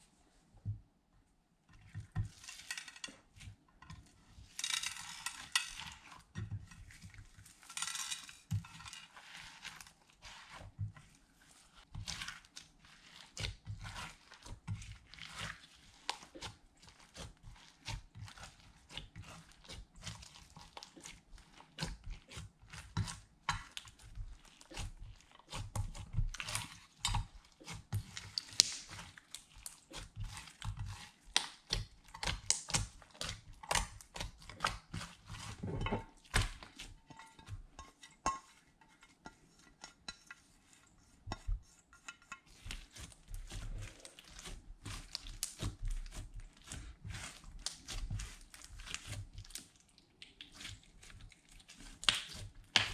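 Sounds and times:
hands squishing slime: 0:08.7 - 0:37.5, 0:40.6 - 0:52.9.

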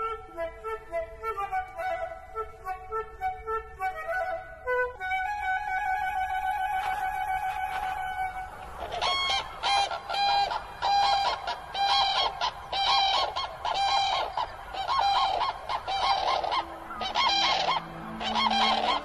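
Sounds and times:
cranes calling in unison: 0:06.8 - 0:19.0.

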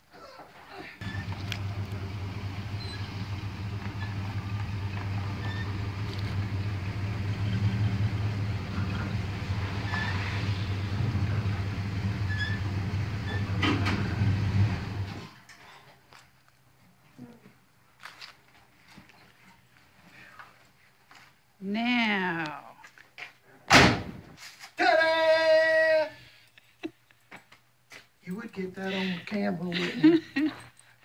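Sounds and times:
pickup engine idling: 0:01.0 - 0:15.2.

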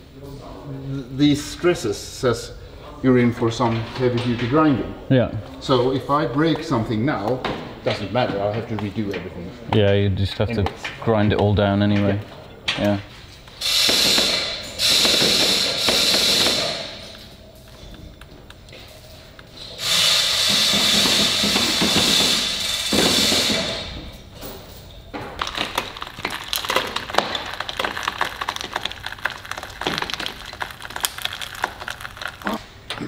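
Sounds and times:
harsh mechanical noise: 0:19.5 - 0:24.2, 0:25.4 - 0:32.6
irregular sharp clicks and cracks: 0:25.4 - 0:32.6.

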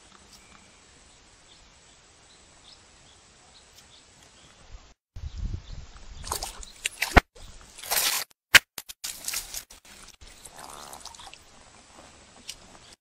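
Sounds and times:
fish splashing in water: 0:06.2 - 0:08.3.

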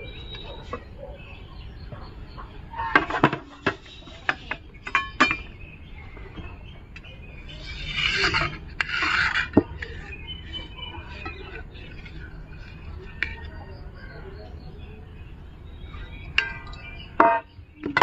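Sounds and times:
metal utensils clanking on vessels: 0:02.8 - 0:05.6, 0:06.3 - 0:13.8, 0:16.2 - 0:18.0
knife scraping steel plate: 0:07.6 - 0:12.3.

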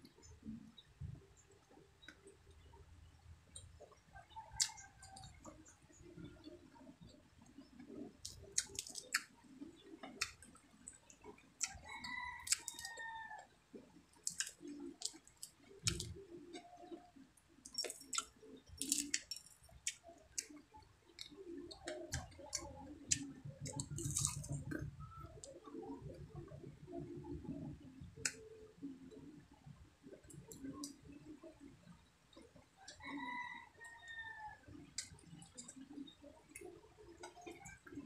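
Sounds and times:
sharp clicks of picking food: 0:03.5 - 0:13.5, 0:14.2 - 0:28.4, 0:34.8 - 0:38.0
chewing and lip smacks: 0:04.4 - 0:05.7, 0:07.0 - 0:13.0, 0:14.2 - 0:17.0, 0:17.6 - 0:26.7, 0:34.9 - 0:38.0.

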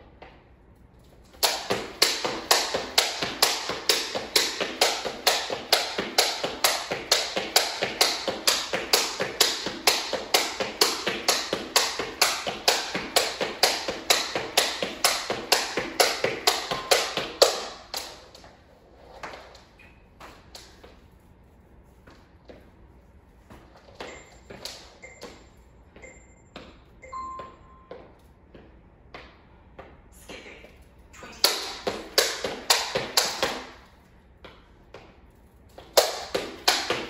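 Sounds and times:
jump rope slapping floor: 0:01.0 - 0:18.6, 0:19.2 - 0:21.0, 0:23.4 - 0:25.4, 0:30.7 - 0:37.0.

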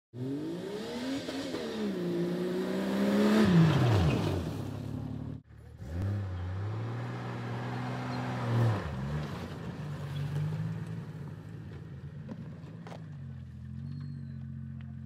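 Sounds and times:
car engine revving: 0:00.2 - 0:11.5.

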